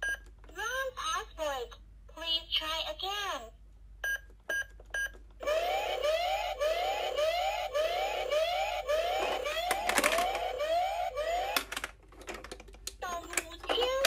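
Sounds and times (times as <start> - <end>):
toy police siren whooping: 5.4 - 11.7.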